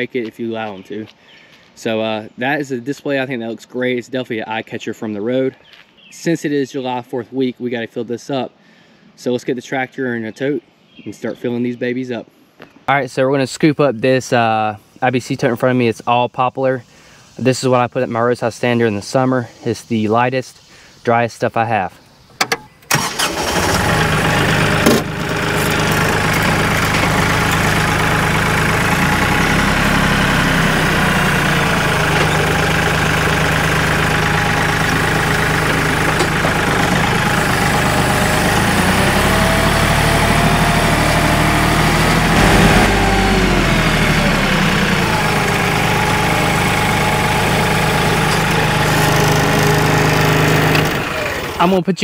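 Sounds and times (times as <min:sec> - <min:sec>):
tractor diesel engine running: 0:22.4 - 0:51.8.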